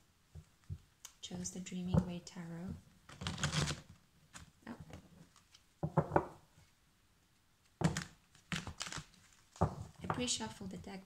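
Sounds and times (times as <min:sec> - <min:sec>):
cards being shuffled: 0:03.1 - 0:04.5, 0:07.8 - 0:09.6.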